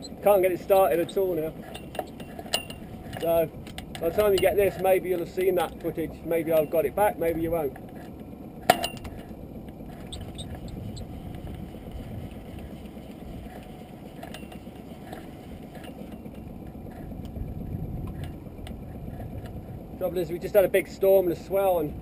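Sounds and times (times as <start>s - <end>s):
wind and sea rumble: 0.0s - 22.0s.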